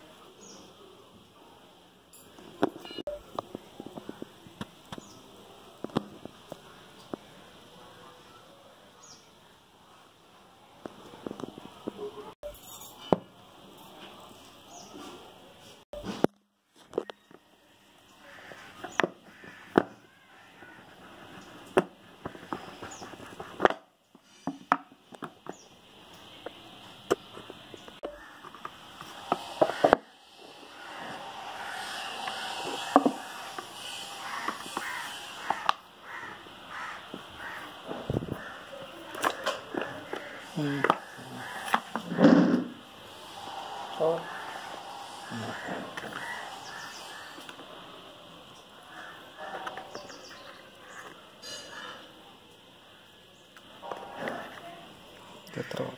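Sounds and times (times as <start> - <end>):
box lid sliding off: 41.6 - 42.8.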